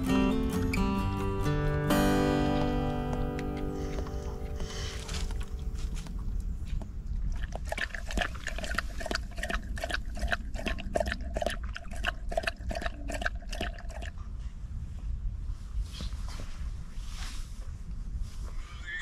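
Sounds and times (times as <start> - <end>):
dog lapping from a pot: 6.8 - 14.3.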